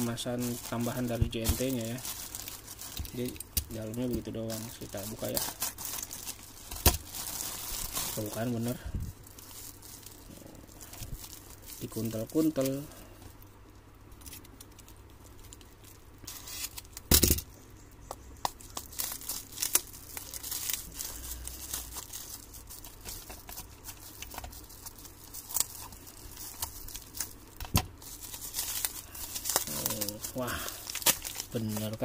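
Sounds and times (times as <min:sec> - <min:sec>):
packaging tearing and crinkling: 0:00.0 - 0:12.9, 0:14.2 - 0:17.4, 0:18.5 - 0:32.0.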